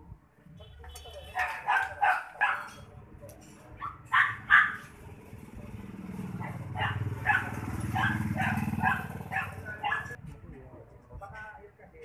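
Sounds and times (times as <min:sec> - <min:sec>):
dog barking: 0:01.4 - 0:02.8, 0:03.8 - 0:04.8, 0:06.4 - 0:10.2.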